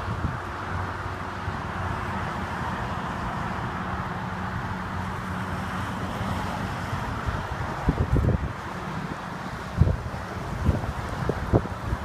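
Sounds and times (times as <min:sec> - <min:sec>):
wind noise on microphone: 0:00.0 - 0:02.3, 0:05.8 - 0:12.0.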